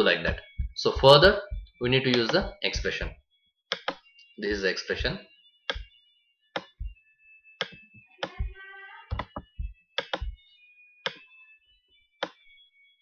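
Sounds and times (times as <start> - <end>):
computer mouse clicking: 2.1 - 2.5, 3.7 - 4.0, 5.7 - 5.9, 6.6 - 6.8, 9.1 - 10.4.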